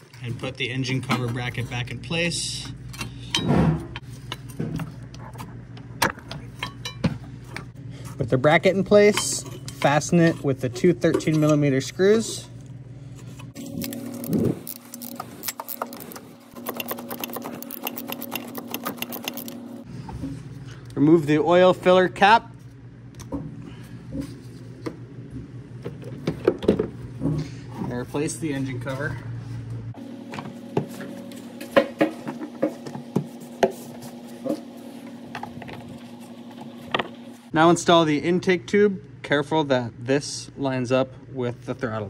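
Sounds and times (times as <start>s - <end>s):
steady low hum: 0.0s - 42.0s
power ratchet whirring and clicking: 13.6s - 19.8s.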